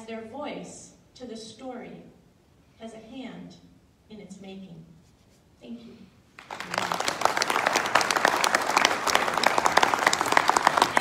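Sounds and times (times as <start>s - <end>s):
audience applauding: 6.4s - 11.0s.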